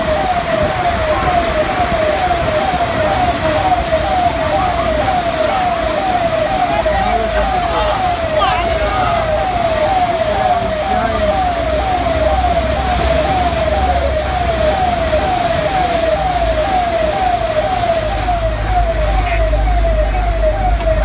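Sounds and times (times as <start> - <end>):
emergency siren sweeping: 0.0 - 21.0
low engine rumble: 0.0 - 21.0
rushing floodwater: 0.0 - 21.0.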